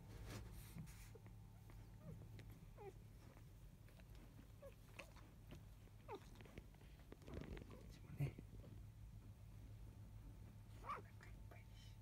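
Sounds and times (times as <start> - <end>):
soft rustling: 0.0 - 11.4
puppies squeaking and whimpering: 1.6 - 3.4.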